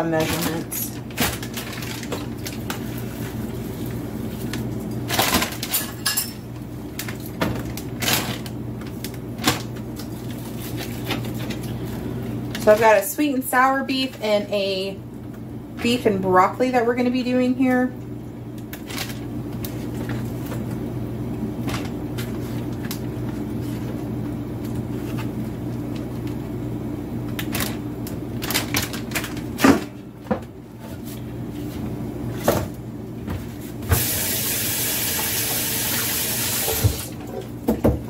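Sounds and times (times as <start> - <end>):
steady low hum: 0.0 - 34.0
faucet water running: 33.9 - 37.2.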